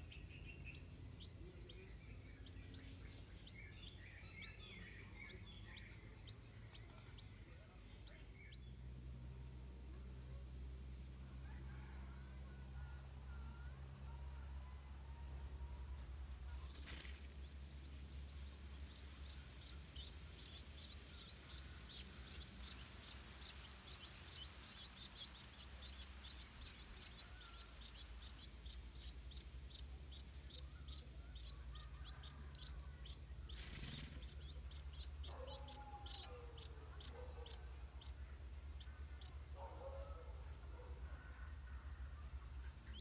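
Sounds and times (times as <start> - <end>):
nestlings begging chirps: 0.0 - 8.8, 16.0 - 39.5.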